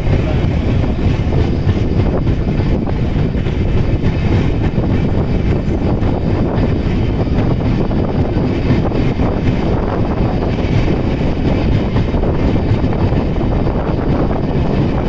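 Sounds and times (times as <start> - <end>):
train rumbling: 0.0 - 15.0
wind buffeting microphone: 0.0 - 15.0.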